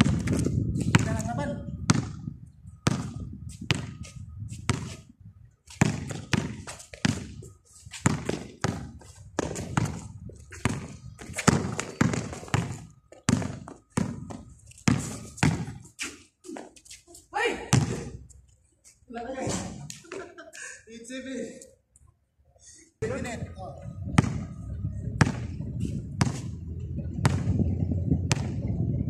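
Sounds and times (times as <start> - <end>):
basketball bouncing on concrete: 0.0 - 5.0, 5.7 - 15.8, 17.7 - 18.2, 24.1 - 24.5, 25.2 - 27.6, 28.2 - 28.7.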